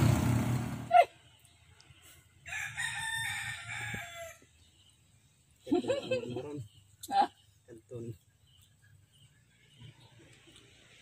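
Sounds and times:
rooster crowing: 2.4 - 4.5.

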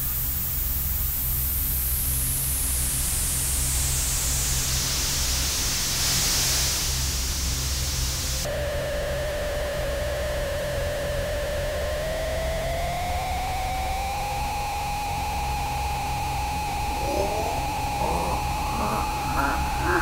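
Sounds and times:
static hiss: 3.9 - 8.5
high falling whine: 8.4 - 20.0
low hum: 13.8 - 20.0
eerie tone: 16.0 - 20.0.

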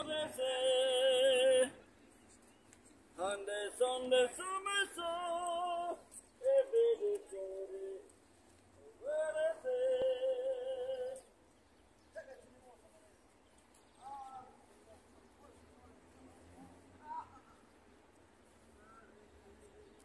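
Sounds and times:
person singing slow melody: 3.2 - 8.2, 8.8 - 11.4.

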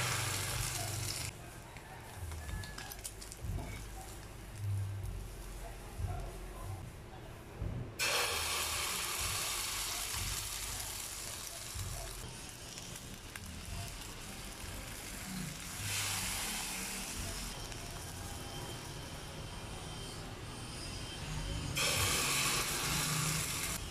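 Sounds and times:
patty sizzling in hot oil: 0.0 - 1.3, 8.0 - 19.0, 21.8 - 23.8.

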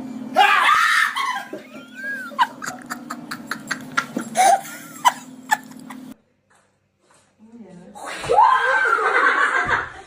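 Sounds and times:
woman screaming: 0.4 - 2.4, 8.1 - 9.1
woman laughing hard: 1.1 - 6.2, 8.4 - 10.0.

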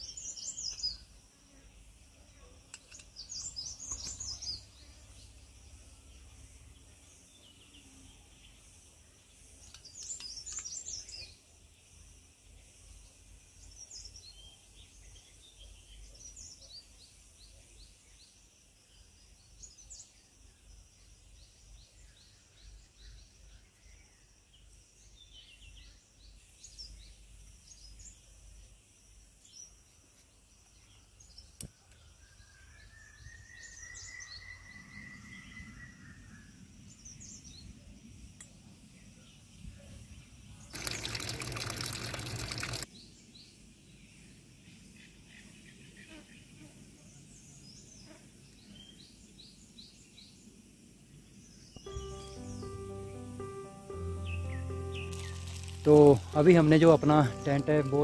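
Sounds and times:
birds chirping: 3.0 - 4.7, 51.8 - 58.0
long whistled bird note: 51.8 - 58.0.

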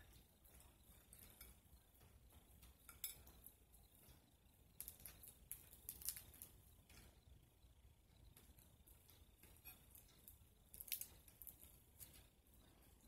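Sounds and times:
crawfish shell crackling: 0.0 - 7.3, 8.3 - 13.0.

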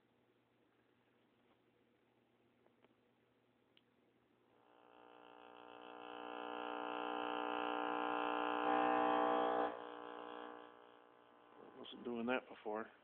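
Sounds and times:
tv speaker buzz: 4.5 - 12.3.

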